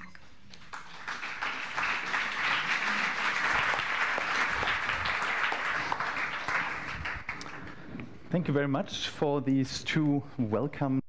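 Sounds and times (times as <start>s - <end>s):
audience applauding: 0.5s - 7.8s.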